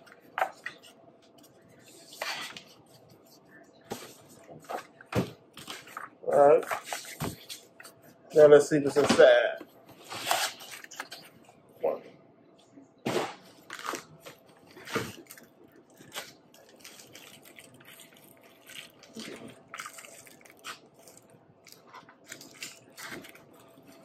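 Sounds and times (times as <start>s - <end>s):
bubble wrap and foam rustling: 13.6s - 24.0s.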